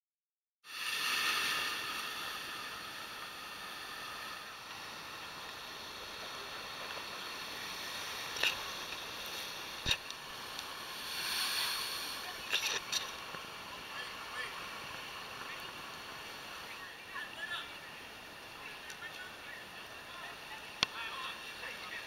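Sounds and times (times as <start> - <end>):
wind: 0.6 - 22.0
surf breaking on rocks: 8.0 - 12.5.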